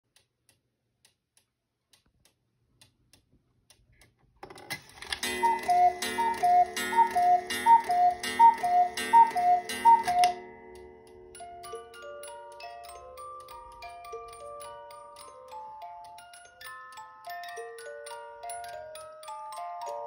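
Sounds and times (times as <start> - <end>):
clock ticking: 5.0 - 20.0
cuckoo calls: 5.1 - 10.4.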